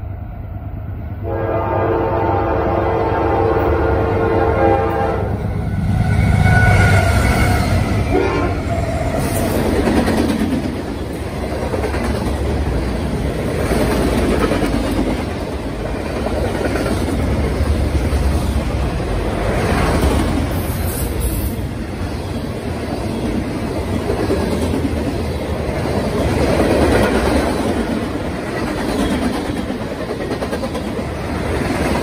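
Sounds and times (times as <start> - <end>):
train horn chord: 1.2 - 5.5, 8.1 - 8.8.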